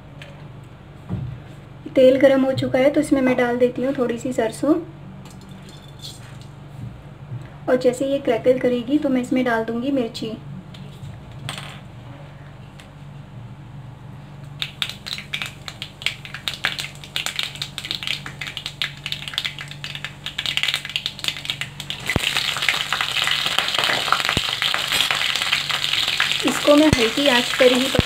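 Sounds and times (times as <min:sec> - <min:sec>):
oil sizzling: 0:14.5 - 0:28.0
seeds popping in hot oil: 0:14.5 - 0:28.0.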